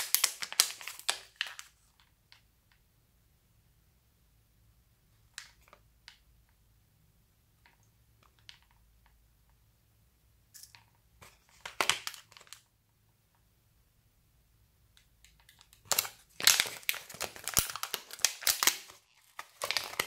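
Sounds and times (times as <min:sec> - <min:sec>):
plastic packet crackling: 0:00.0 - 0:01.8, 0:11.4 - 0:12.6, 0:15.3 - 0:20.0.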